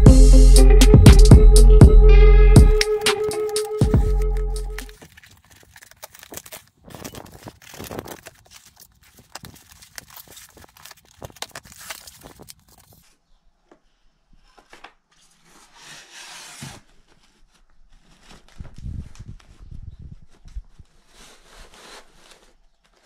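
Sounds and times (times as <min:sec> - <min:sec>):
scrapes clicks and taps: 0:02.8 - 0:05.0
packing tape slit and torn: 0:02.8 - 0:13.0
bag and foam rustling: 0:02.8 - 0:13.2, 0:15.2 - 0:23.0.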